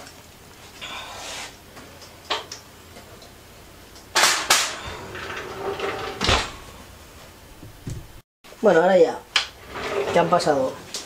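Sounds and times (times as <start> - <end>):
oven door shutting with thump: 4.2 - 6.8.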